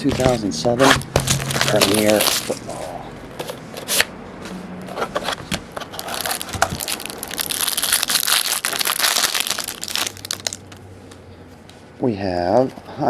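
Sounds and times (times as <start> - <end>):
plastic wrapper crinkling: 1.2 - 2.7, 5.8 - 10.8.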